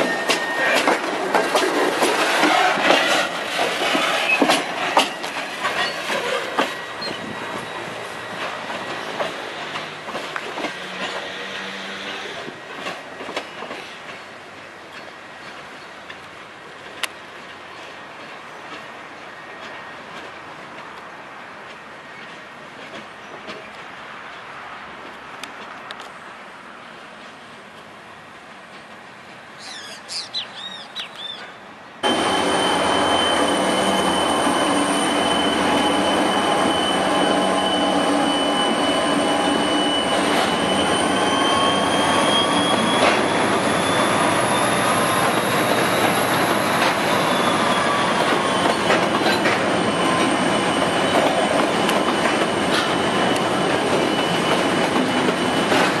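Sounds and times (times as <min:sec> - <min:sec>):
wheel squeal: 0:04.0 - 0:09.5, 0:32.0 - 0:56.0.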